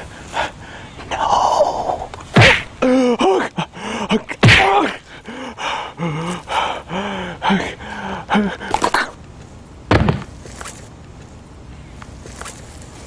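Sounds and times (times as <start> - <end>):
person gasping and groaning: 0.5 - 9.2
sharp whacks: 2.4 - 2.7, 4.4 - 4.8.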